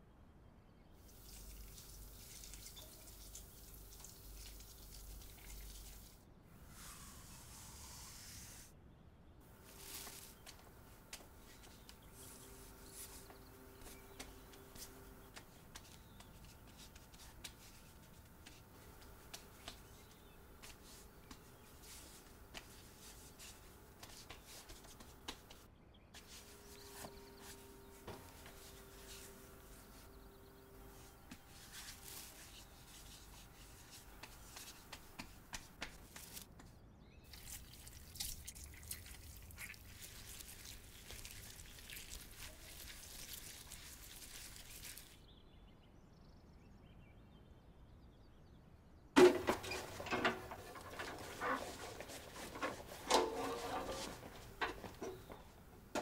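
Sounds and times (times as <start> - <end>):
wet clay smoothed by hand: 1.1 - 8.7, 30.8 - 36.4, 37.3 - 45.2
knocks and scraping: 9.5 - 36.7, 49.2 - 56.0.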